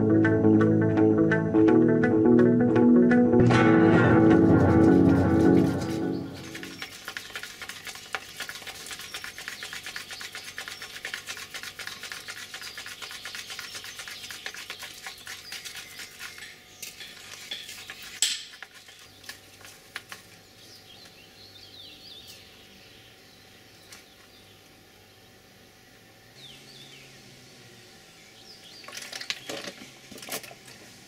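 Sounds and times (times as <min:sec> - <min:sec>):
scratchy rustling: 0:04.2 - 0:20.3
faint birds chirping: 0:05.6 - 0:29.8.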